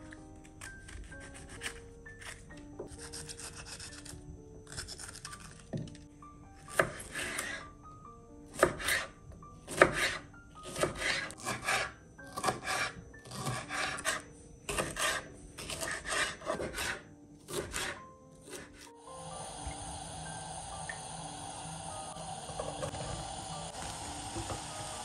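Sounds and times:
knife slicing pepper on board: 9.7 - 18.9.

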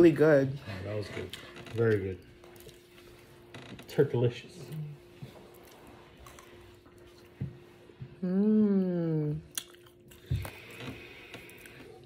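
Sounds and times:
faint chewing: 2.2 - 3.4, 4.6 - 7.7, 9.4 - 12.0
person humming: 8.2 - 9.4.

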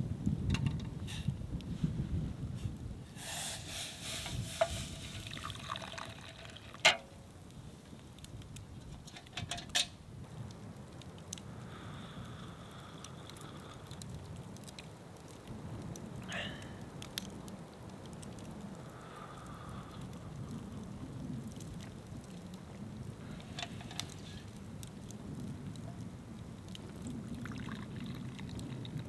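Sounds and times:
campfire crackling: 0.0 - 29.0
hot drink pouring into cup: 3.1 - 7.0, 26.7 - 29.0.

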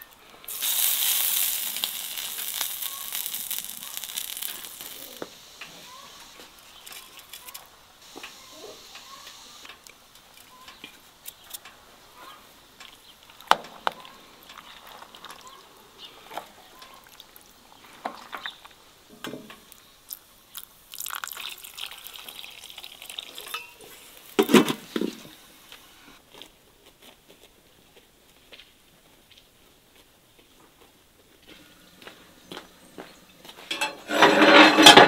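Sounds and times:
hissing: 0.5 - 9.8
cookware clatter: 33.7 - 35.0
utensils knocking and clinking: 33.7 - 35.0.

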